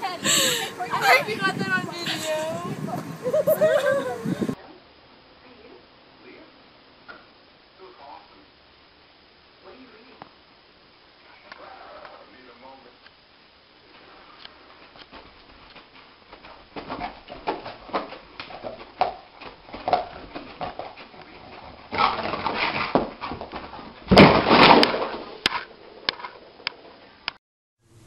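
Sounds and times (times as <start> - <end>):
dog scuffling: 14.8 - 25.0.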